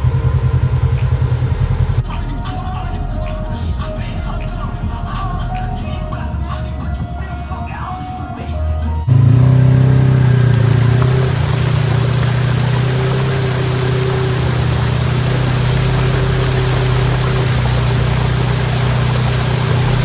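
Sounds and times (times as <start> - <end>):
vehicle engine running: 0.0 - 8.4, 9.0 - 20.0
music: 0.0 - 9.1, 15.4 - 20.0
road and wind noise: 0.0 - 20.0.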